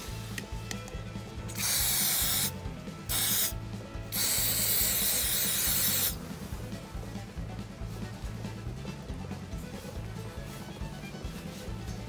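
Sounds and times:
aerosol can spraying: 0:01.5 - 0:06.2.

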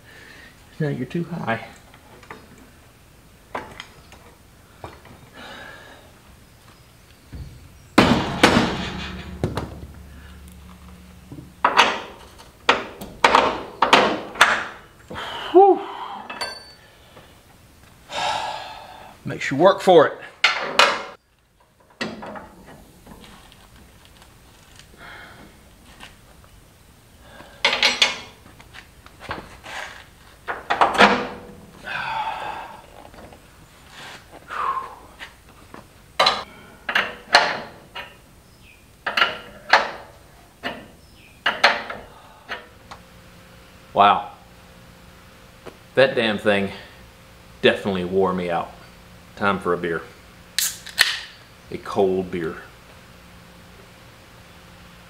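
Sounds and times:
metal clanks and knocks: 0:07.3 - 0:14.8, 0:21.8 - 0:23.3
scraping rattle: 0:08.0 - 0:13.6
man sighing: 0:15.1 - 0:16.4, 0:18.1 - 0:19.2, 0:25.0 - 0:25.6, 0:31.8 - 0:33.0, 0:34.5 - 0:35.1.

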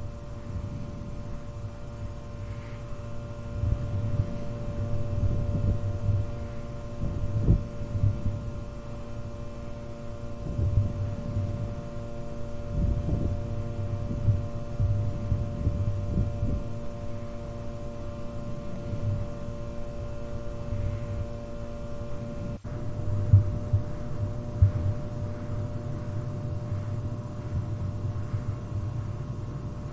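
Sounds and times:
fluorescent light hum: 0:00.0 - 0:29.9
low thumps: 0:22.7 - 0:29.8.

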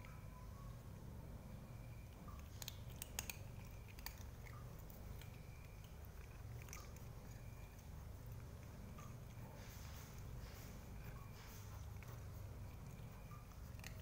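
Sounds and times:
cat crunching dry kibble: 0:02.1 - 0:09.5, 0:11.8 - 0:14.0.

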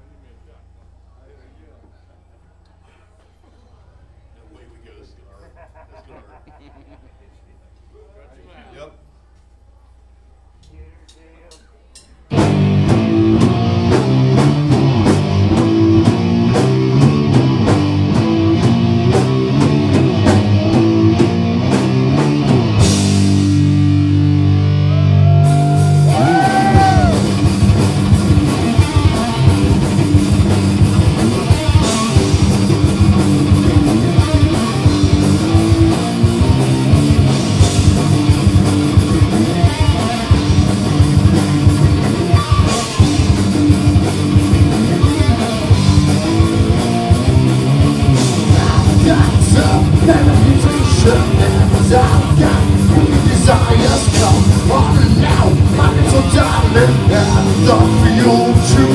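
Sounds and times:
heavy metal band playing: 0:12.3 - 0:58.9
person singing or shouting: 0:24.8 - 0:27.4, 0:48.4 - 0:58.9.

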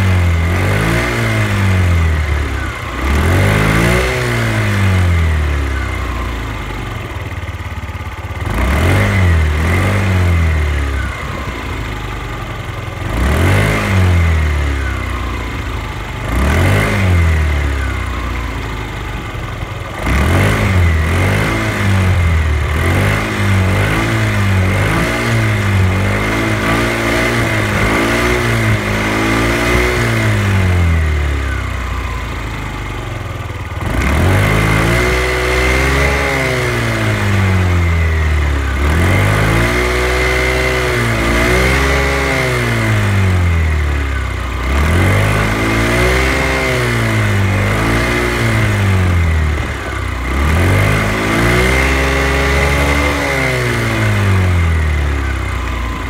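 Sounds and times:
scooter engine revving: 0:00.0 - 0:56.0.

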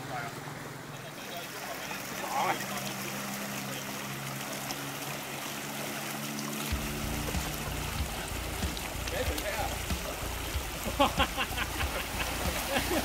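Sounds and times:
river water rushing and splashing: 0:00.0 - 0:13.0
deep rumble: 0:06.7 - 0:12.5.

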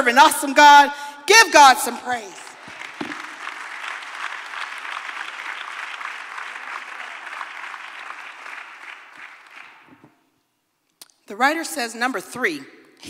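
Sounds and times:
congregation applauding: 0:02.4 - 0:10.1.

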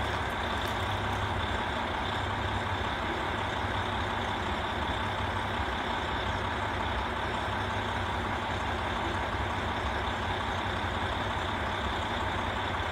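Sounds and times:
diesel engines idling: 0:00.0 - 0:12.9.

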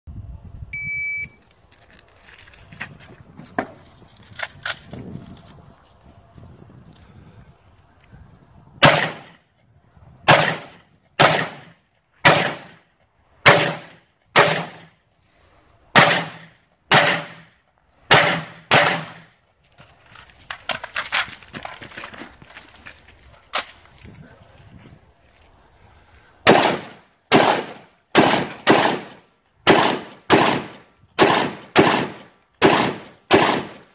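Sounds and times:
rifle shots with echo: 0:08.8 - 0:09.4, 0:10.3 - 0:12.8, 0:13.4 - 0:14.9, 0:16.0 - 0:17.5, 0:18.1 - 0:19.3, 0:26.4 - 0:33.9.

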